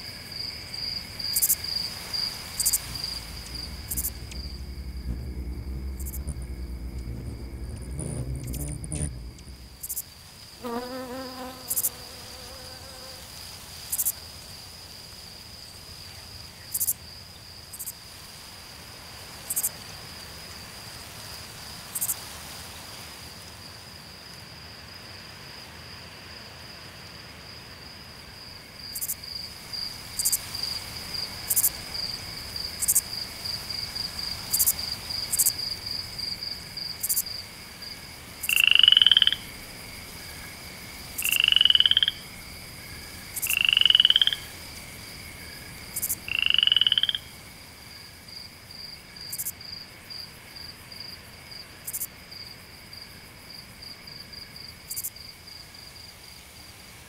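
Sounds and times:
high pulsing animal trill: 2.7 - 10.0
rising animal calls: 2.7 - 10.0.

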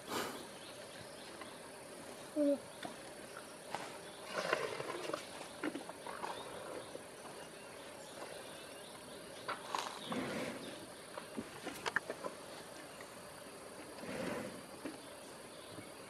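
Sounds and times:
elephant chewing and crunching: 3.9 - 7.0, 9.5 - 13.1.

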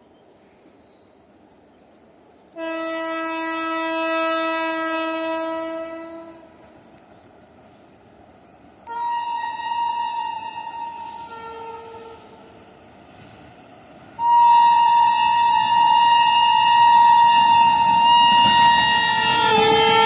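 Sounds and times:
locomotive horn: 2.6 - 6.6, 8.8 - 12.5, 14.2 - 20.0.

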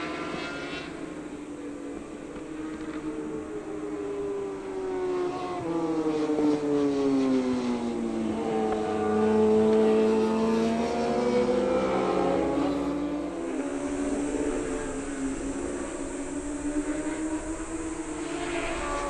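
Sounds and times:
superbike engine at high revs: 8.3 - 19.0.

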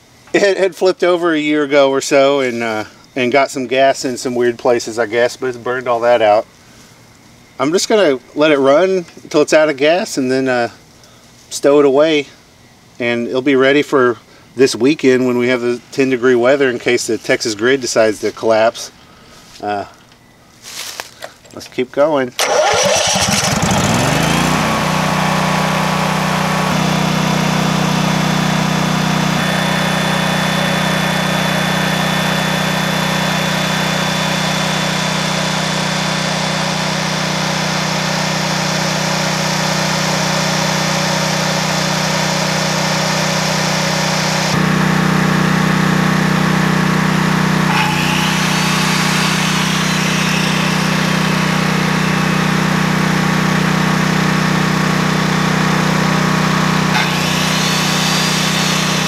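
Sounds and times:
generator engine running: 22.4 - 59.0.

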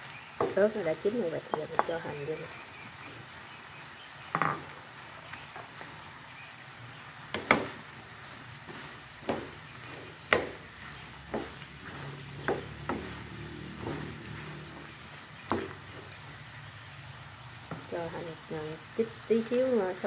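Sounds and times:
faint sizzle: 0.0 - 20.0
wooden spatula scraping pan: 8.6 - 16.5.

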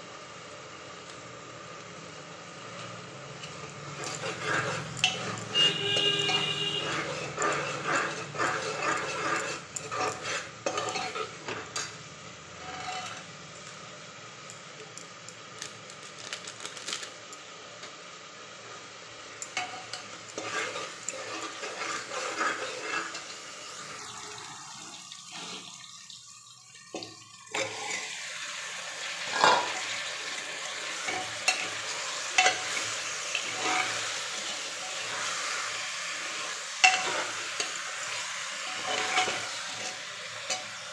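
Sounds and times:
food sizzling in oil: 2.4 - 40.9
spoon scraping metal pot: 4.0 - 11.9, 12.6 - 13.4, 19.4 - 24.2, 27.5 - 28.2, 31.0 - 35.6, 36.4 - 40.7.

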